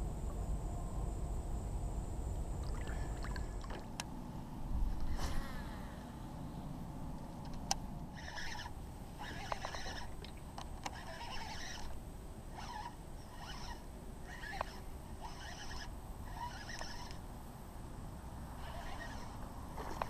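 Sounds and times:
fishing reel gears whirring: 8.1s - 17.2s, 18.6s - 20.0s
fishing reel clicks: 8.2s - 10.1s, 10.8s - 17.2s.

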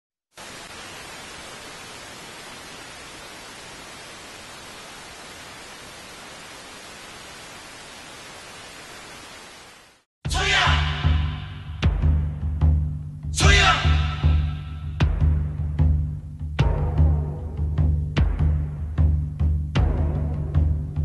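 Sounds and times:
television static hiss: 0.3s - 10.1s.

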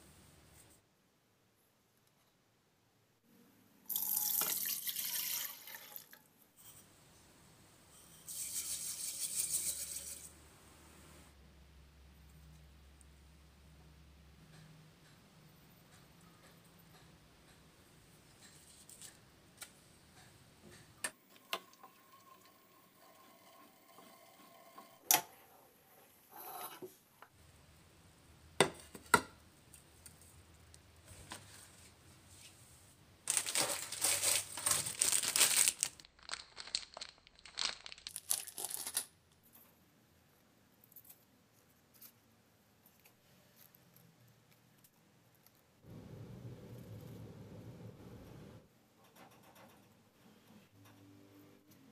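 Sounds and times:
banana leaves rustling: 33.3s - 39.0s.

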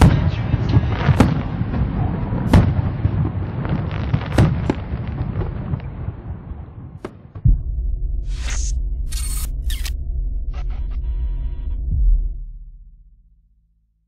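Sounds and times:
fireworks bangs: 0.0s - 7.6s
low rumble: 5.2s - 14.0s.

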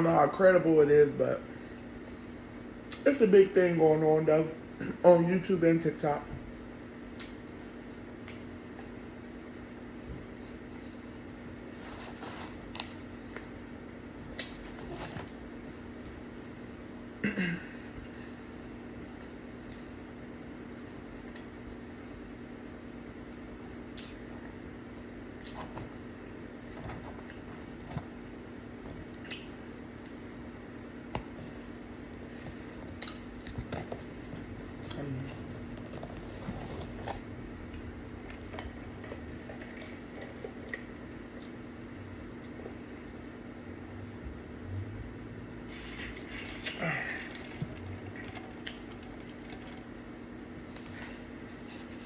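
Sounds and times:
steady low hum: 0.0s - 52.0s
person chewing food: 32.6s - 35.8s.

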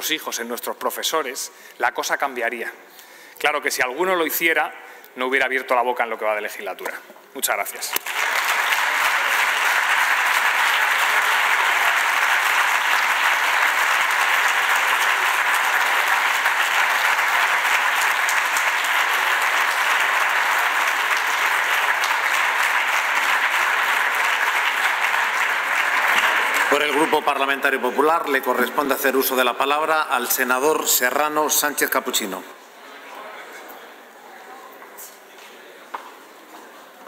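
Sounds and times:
sustained applause: 8.0s - 27.7s.

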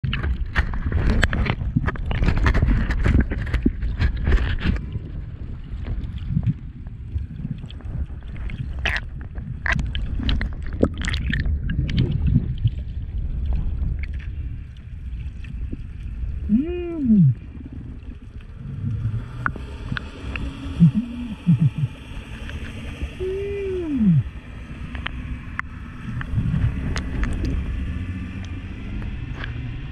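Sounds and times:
clicks and crackles: 0.0s - 4.9s, 7.5s - 12.3s, 24.9s - 27.6s
underwater water rush: 0.0s - 29.9s
orca calls: 16.5s - 17.4s, 20.8s - 22.0s, 23.2s - 24.3s.

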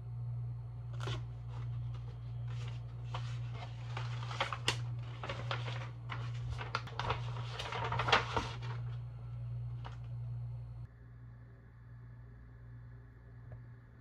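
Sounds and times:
low hum: 0.0s - 14.0s
paper rustling and crackling: 0.9s - 10.2s.

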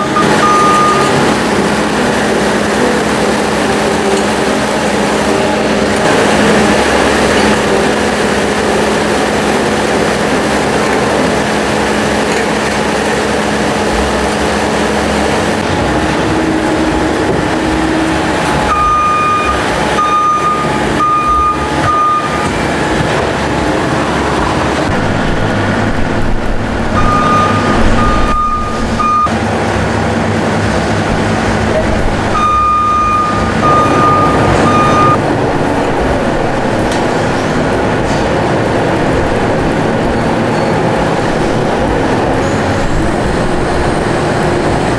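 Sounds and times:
backup alarm beeping: 0.0s - 8.1s, 17.7s - 22.9s, 26.9s - 29.4s, 32.3s - 35.2s
diesel loader engine running: 0.0s - 44.9s.

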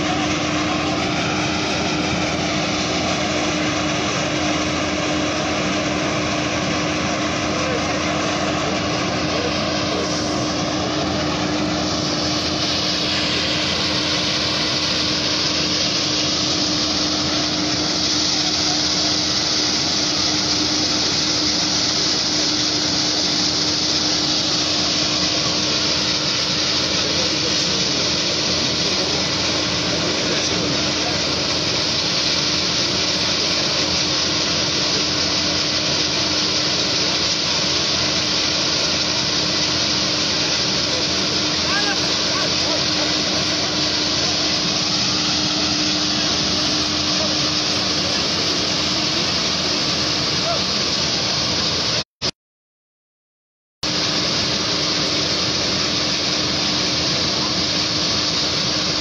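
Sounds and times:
constant hum: 0.0s - 52.0s
rushing hiss: 0.0s - 52.0s.

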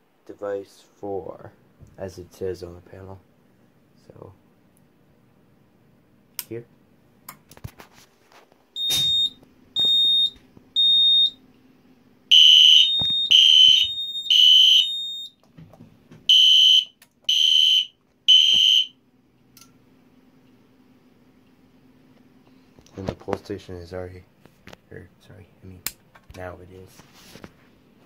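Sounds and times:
high alarm beeps: 8.8s - 11.4s, 12.3s - 15.4s, 16.3s - 18.9s
fire alarm horn blasts: 12.3s - 15.3s, 16.3s - 19.0s.

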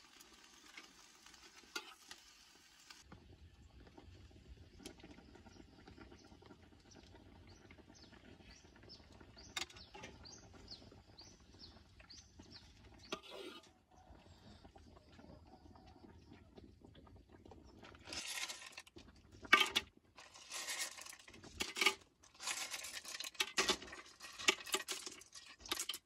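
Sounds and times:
bird chirping: 6.9s - 13.1s.

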